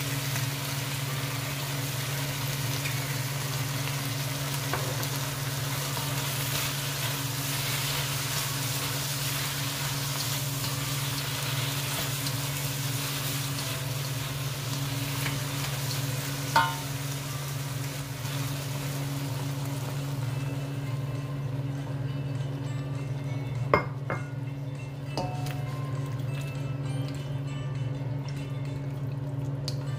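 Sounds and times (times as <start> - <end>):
shrimp sizzling in a wok: 0.0 - 21.1
spatula clanging on wok: 16.5 - 17.0, 25.1 - 25.8.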